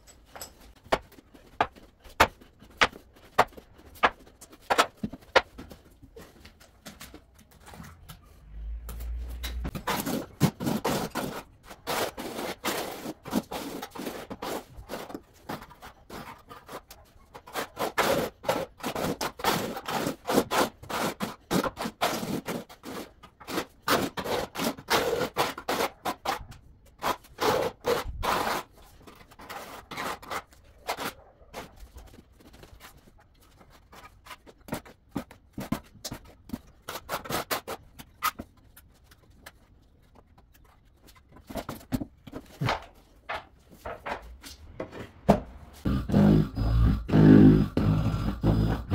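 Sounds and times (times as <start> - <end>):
trowel scraping adhesive on concrete: 9.7 - 38.8.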